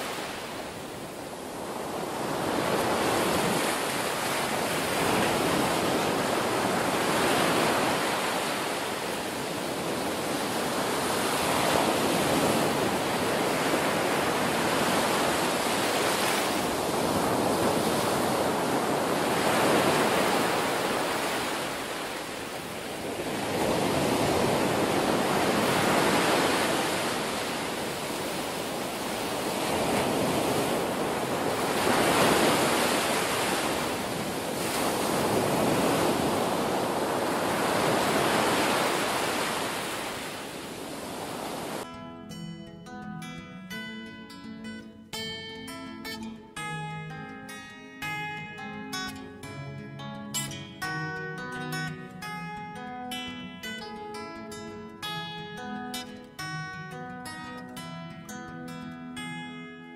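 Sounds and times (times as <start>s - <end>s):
ocean surf breaking on beach: 0.0s - 41.9s.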